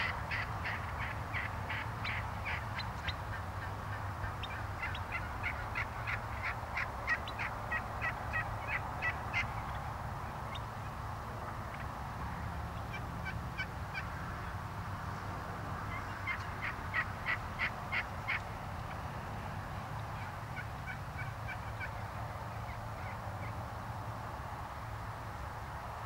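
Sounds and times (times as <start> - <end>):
wild turkeys calling: 0.0 - 9.9, 11.7 - 11.9, 12.7 - 14.6, 15.9 - 19.0, 20.0 - 23.6.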